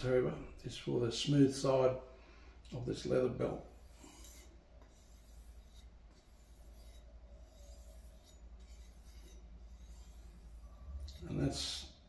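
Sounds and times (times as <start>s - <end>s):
knife stropping on leather: 3.6s - 11.5s.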